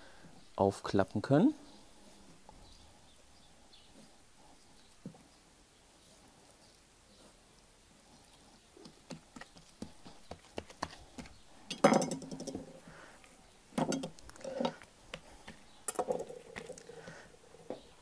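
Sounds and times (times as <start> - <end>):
meat handling noise: 8.8 - 11.7.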